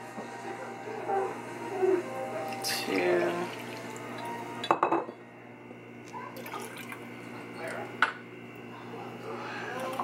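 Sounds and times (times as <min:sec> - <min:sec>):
low steady hum: 0:00.0 - 0:10.0
glass clink: 0:04.6 - 0:05.1
glassware handling: 0:04.6 - 0:05.2.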